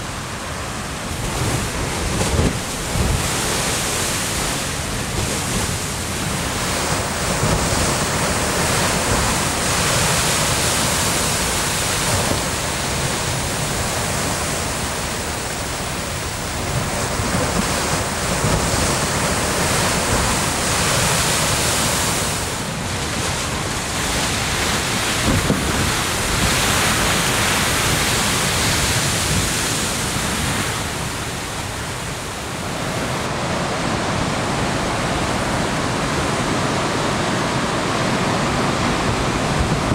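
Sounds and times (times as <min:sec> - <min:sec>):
surf breaking against rocks: 0:01.0 - 0:36.2.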